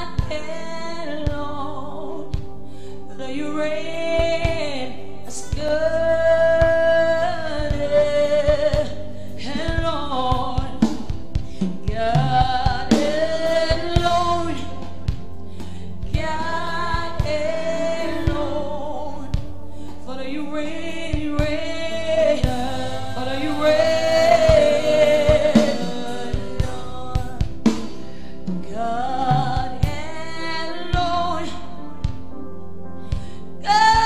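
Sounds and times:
steady instrumental bed: 0:00.0 - 0:31.3
woman singing lead: 0:00.0 - 0:32.3, 0:33.6 - 0:34.0
drum kit strokes: 0:07.6 - 0:31.2
backing singers: 0:21.2 - 0:27.8.

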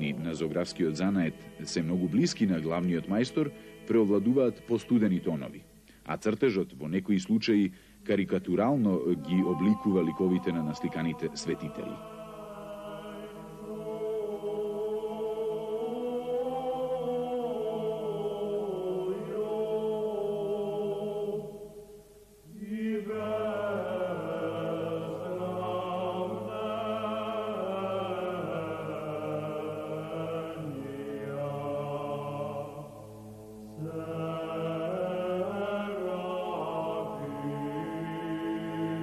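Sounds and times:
low voices chanting: 0:08.7 - 0:39.0.

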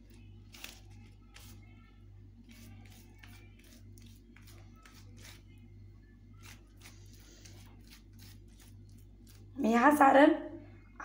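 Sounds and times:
hands smearing wet paste on leaf: 0:02.5 - 0:05.5, 0:06.4 - 0:09.5.

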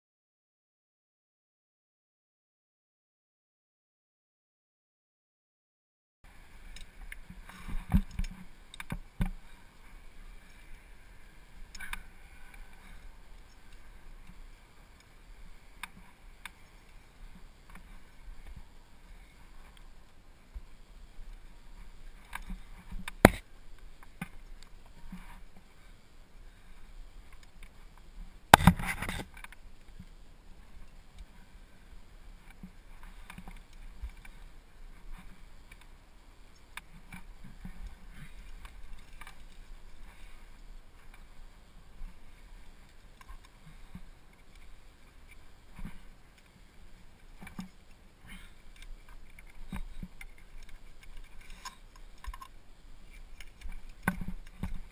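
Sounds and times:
scraping and rustling against rock: 0:26.6 - 0:31.5, 0:32.4 - 0:54.9.

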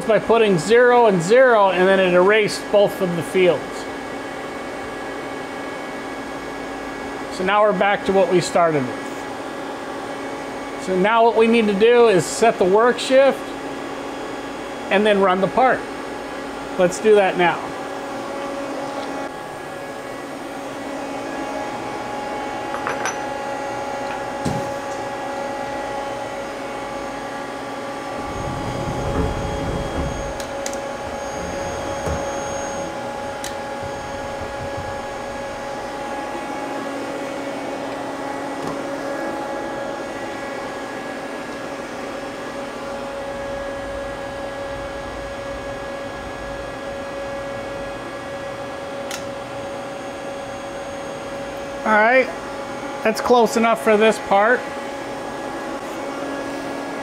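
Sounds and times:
lathe machine hum: 0:17.5 - 0:57.0
low rumble: 0:28.1 - 0:32.2.

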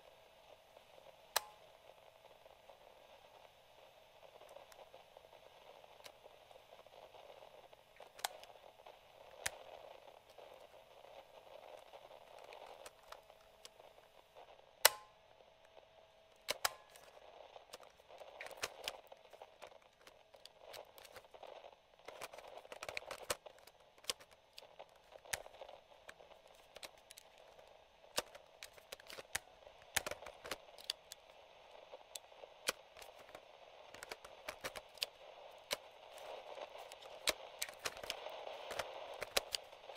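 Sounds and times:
radio static hiss: 0:00.0 - 0:39.9
cassette recorder buttons clicking: 0:08.0 - 0:08.5, 0:14.8 - 0:15.2, 0:16.4 - 0:21.4, 0:22.0 - 0:31.3, 0:32.0 - 0:39.9.

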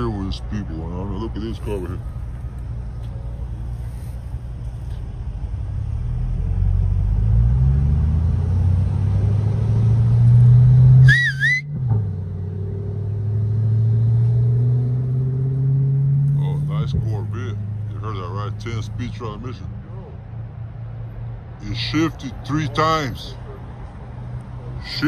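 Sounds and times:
car engine accelerating: 0:01.5 - 0:19.7
high wavering whistle: 0:11.0 - 0:11.8.

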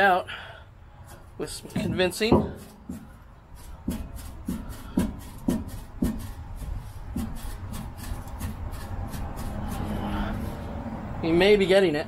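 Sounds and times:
sharp metallic knocks with ringing: 0:01.7 - 0:03.2.

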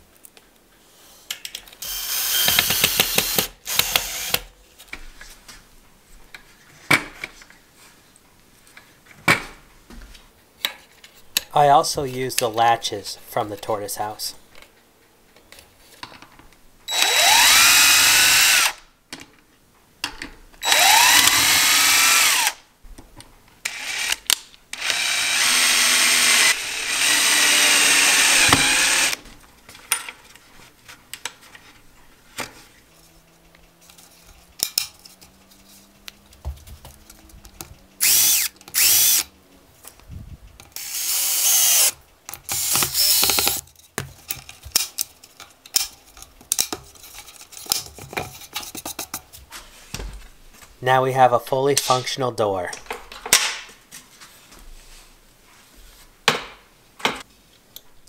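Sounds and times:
cordless drill running: 0:01.8 - 0:04.4, 0:16.9 - 0:18.8, 0:20.6 - 0:22.6, 0:23.6 - 0:24.2, 0:24.8 - 0:29.2, 0:38.0 - 0:39.3, 0:40.8 - 0:41.9, 0:42.5 - 0:43.6.

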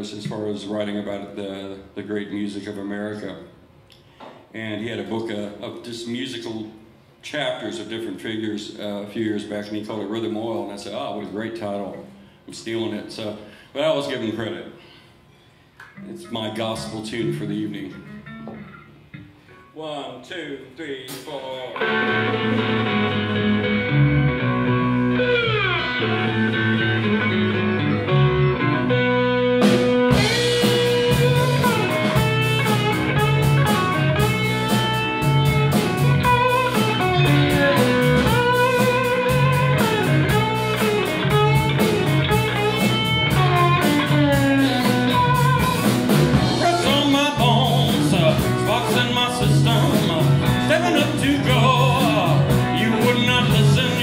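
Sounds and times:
live blues band: 0:16.8 - 0:19.5, 0:21.8 - 0:54.0
slide guitar gliding down: 0:21.8 - 0:54.0
drum hit: 0:29.7 - 0:54.0.

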